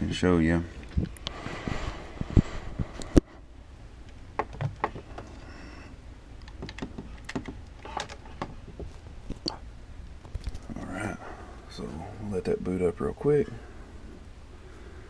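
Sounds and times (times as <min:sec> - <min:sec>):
plastic case clicks and knocks: 0:06.5 - 0:07.6.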